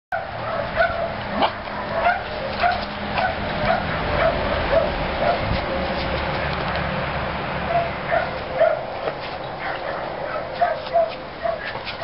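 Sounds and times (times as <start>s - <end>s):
small dog yapping: 0.1s - 5.4s, 9.6s - 12.0s.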